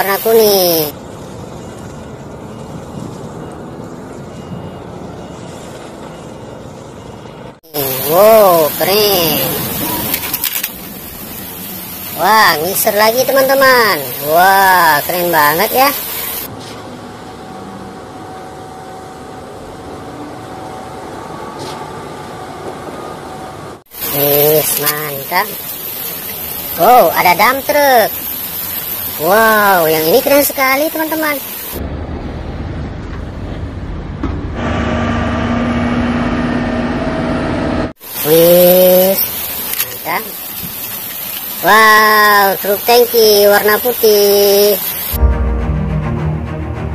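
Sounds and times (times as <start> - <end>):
concrete mixer truck running: 31.8 - 37.9.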